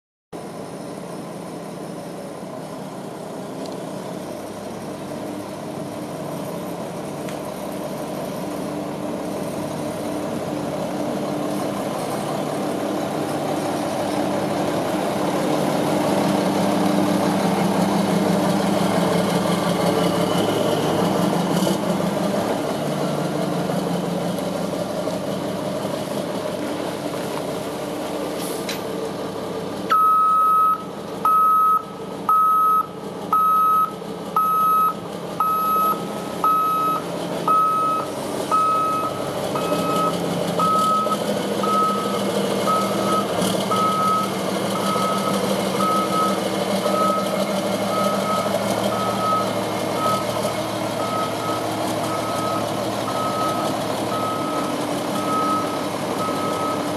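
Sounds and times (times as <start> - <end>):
diesel truck engine driving past: 0.4 - 56.9
backup alarm beeping: 29.9 - 42.1.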